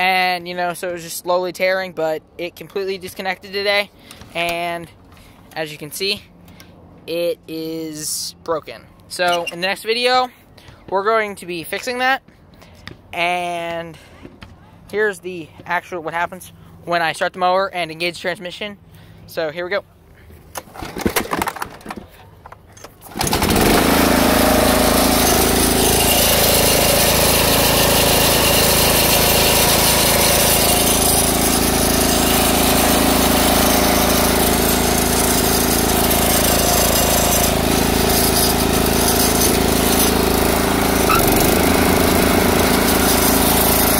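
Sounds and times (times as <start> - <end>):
lawn mower engine running: 23.0 - 43.9.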